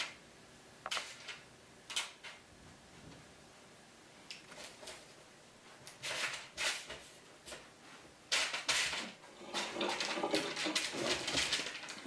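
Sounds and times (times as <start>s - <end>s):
paper rustling: 5.8s - 7.7s, 8.3s - 12.0s.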